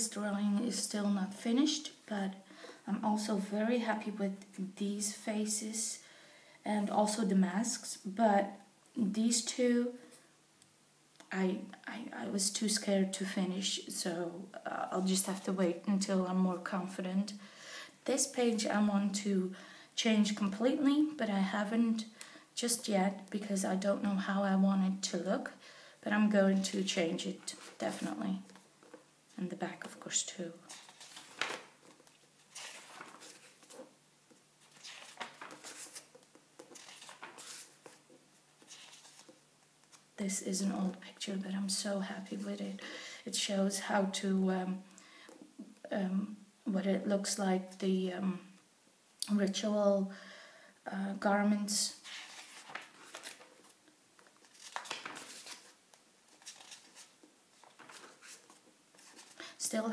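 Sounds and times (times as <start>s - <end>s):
book pages turning: 30.6s - 40.1s, 52.0s - 59.4s.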